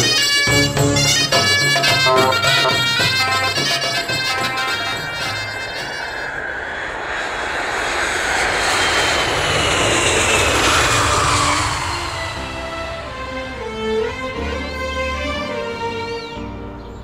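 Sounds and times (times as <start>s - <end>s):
jet airliner passing low: 0.0s - 17.0s
thin falling jet whine: 3.2s - 15.4s.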